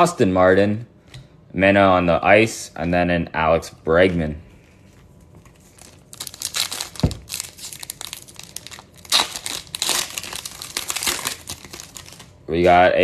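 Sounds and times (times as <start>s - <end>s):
foil wrapper crinkling and tearing: 5.4s - 12.4s.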